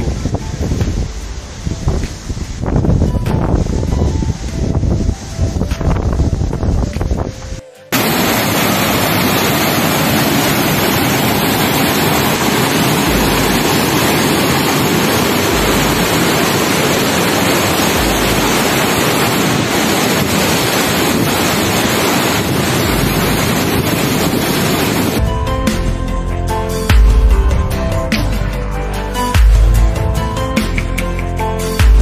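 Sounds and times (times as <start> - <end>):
river rushing: 0.0 - 25.4
wind buffeting microphone: 0.0 - 25.4.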